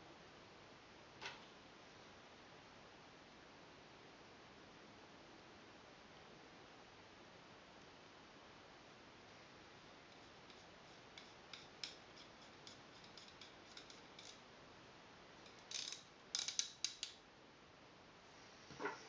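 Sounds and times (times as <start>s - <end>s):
small plastic parts clicking: 15.5s - 17.2s.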